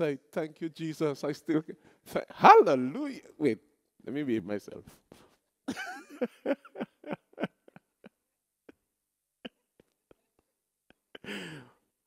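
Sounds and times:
man laughing: 5.7 - 11.8.

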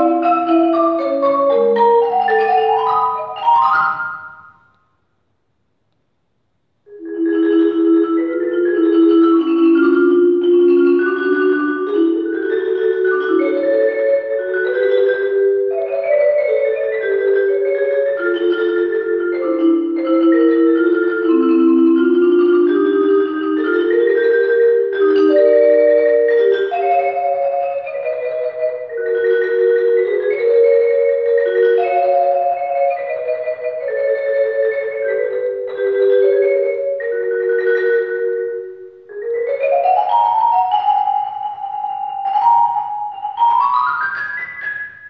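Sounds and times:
marimba playing: 0.0 - 4.7, 6.9 - 45.0.

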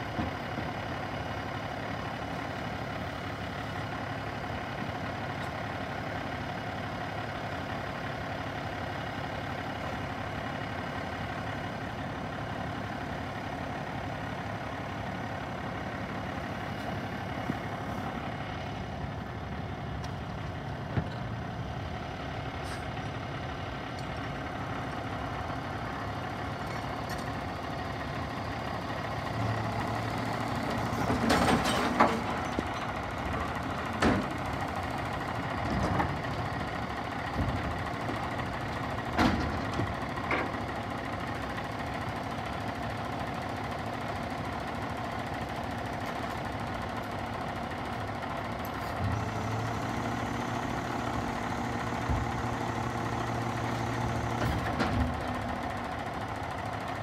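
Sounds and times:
diesel engine idling: 0.0 - 57.0
garbage cart clattering and bang: 31.0 - 32.4.

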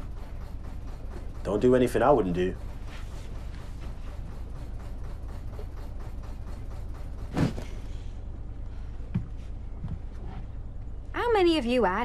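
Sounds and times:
room tone hum: 0.0 - 12.0
soft thump and rustle: 7.3 - 7.9.

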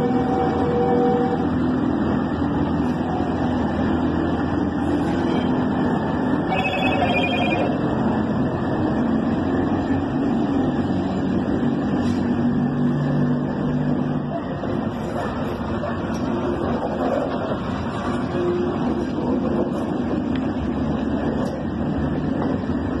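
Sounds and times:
diesel locomotive engine droning: 0.0 - 23.0
trilling ringing tone: 6.5 - 7.9.

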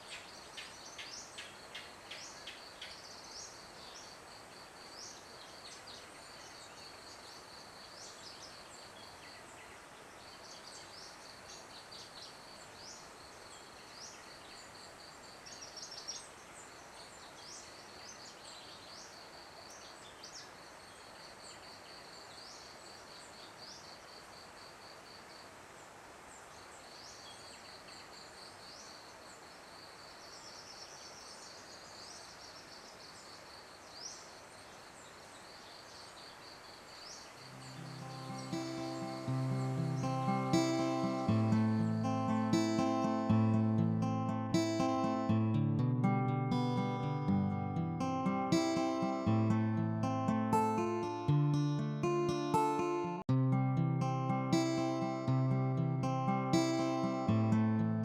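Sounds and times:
soft steady hiss: 0.0 - 58.0
insect trill: 35.5 - 43.6
bird chirps: 37.1 - 45.3.

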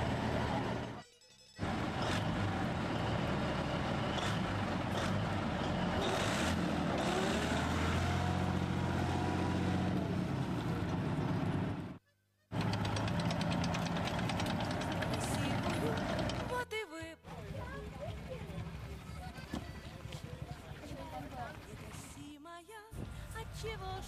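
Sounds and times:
tracked vehicle diesel engine: 0.0 - 1.0, 1.6 - 22.2.

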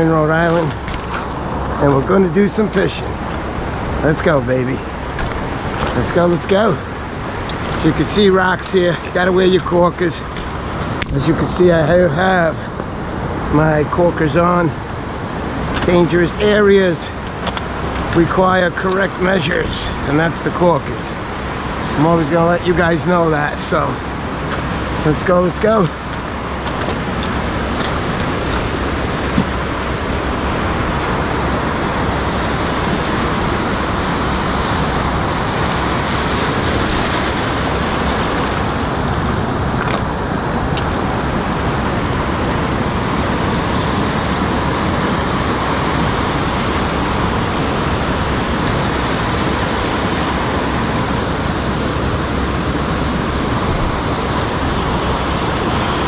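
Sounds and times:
surf washing over rocks: 0.0 - 56.0.

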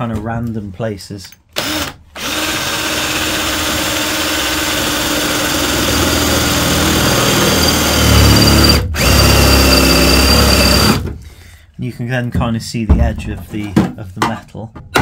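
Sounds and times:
power drill cutting steel: 1.6 - 11.0.

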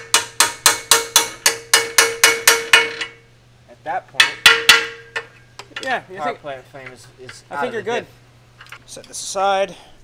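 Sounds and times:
hammer striking steel pry bar: 0.0 - 3.2, 4.2 - 5.4.

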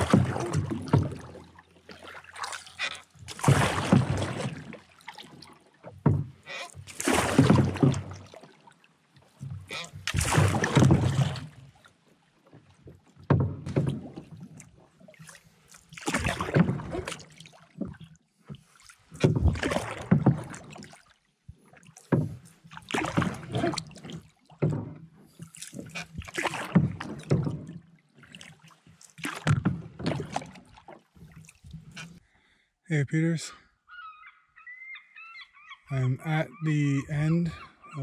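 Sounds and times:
paddle splashing water: 0.0 - 32.6.

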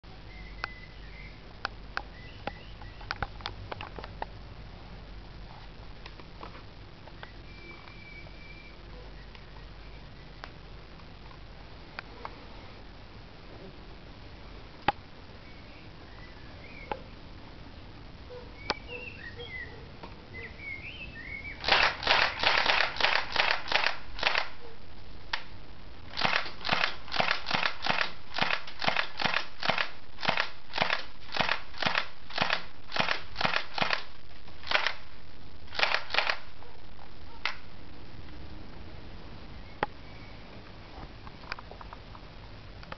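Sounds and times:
airsoft pistol shots: 21.6 - 24.5, 26.2 - 35.0, 35.7 - 36.4.

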